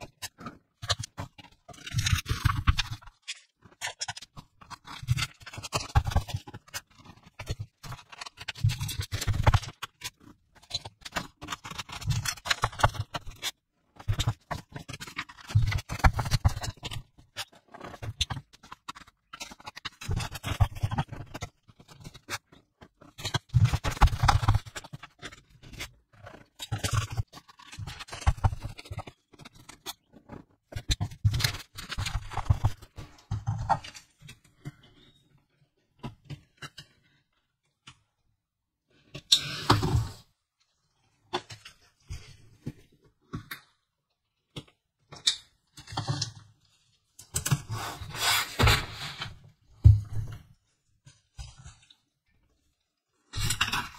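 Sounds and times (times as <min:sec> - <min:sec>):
paper sheets rustling and flapping: 0:00.1 - 0:13.5, 0:14.1 - 0:34.2, 0:47.4 - 0:50.8.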